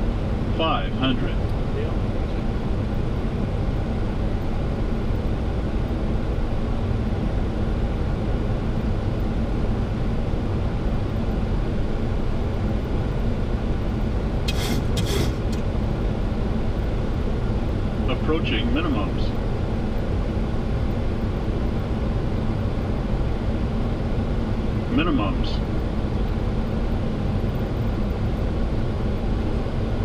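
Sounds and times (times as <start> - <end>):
airflow and engine rumble: 0.0 - 30.0
short hiss bursts: 14.5 - 15.6.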